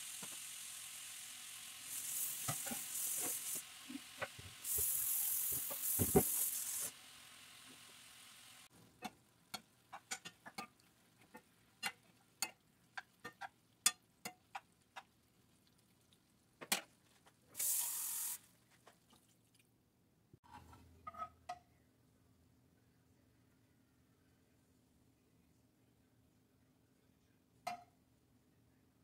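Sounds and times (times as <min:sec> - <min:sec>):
sizzling hiss: 0:00.0 - 0:08.7, 0:17.6 - 0:18.4.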